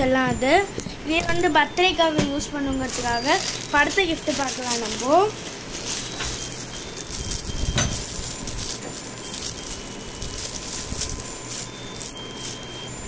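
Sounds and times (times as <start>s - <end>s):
objects knocking and clicking: 5.8s - 9.1s.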